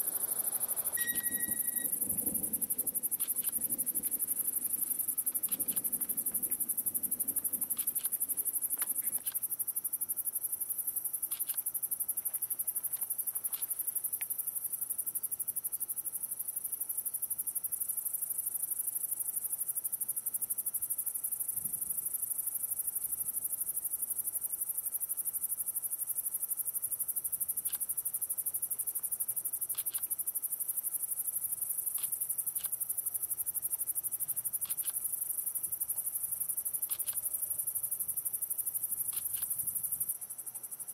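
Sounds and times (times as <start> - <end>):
insects trilling: 0.0 - 19.8, 20.8 - 40.9
faint short chirps: 1.0 - 2.0.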